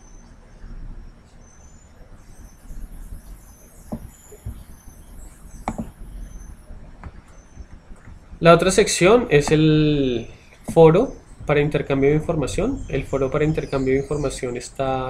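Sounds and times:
faint high chirps: 0.0 - 15.0
low microphone hiss: 0.0 - 15.0
computer mouse clicks: 5.5 - 6.4.

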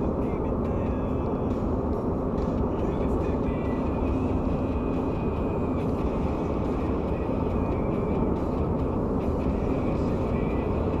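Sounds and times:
car engine hum: 0.0 - 11.0
road and tyre noise: 0.0 - 11.0.

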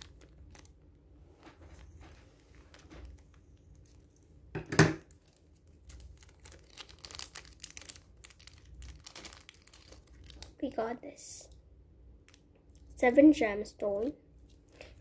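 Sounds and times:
scissors cutting wrapper: 0.0 - 0.7, 5.1 - 10.5
wrapper crinkling and tearing: 0.0 - 0.8, 5.0 - 10.6.

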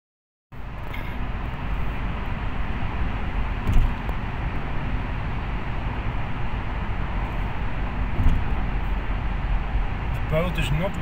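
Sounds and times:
car road and engine noise: 0.5 - 11.0
brief thump: 3.6 - 4.0, 8.2 - 8.5.

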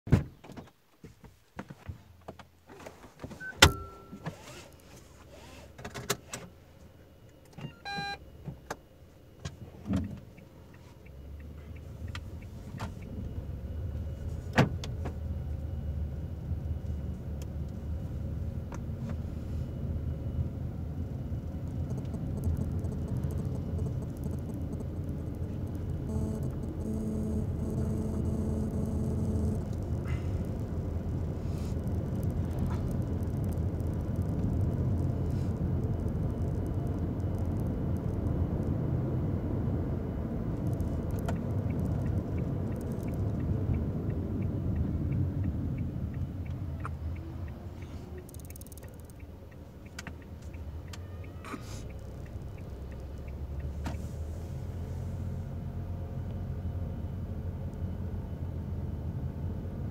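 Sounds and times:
car engine and road noise: 0.1 - 59.9
short electronic beep: 3.4 - 4.4, 7.6 - 8.2, 26.0 - 30.2.

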